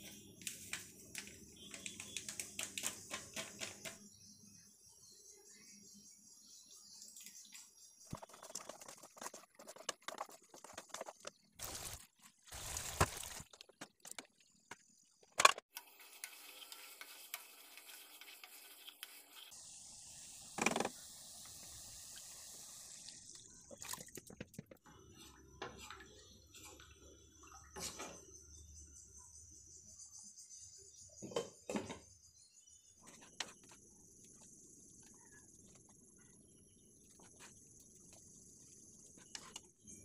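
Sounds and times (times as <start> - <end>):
food sizzling in a wok: 15.7 - 23.3
spatula scraping a pan: 15.9 - 19.5.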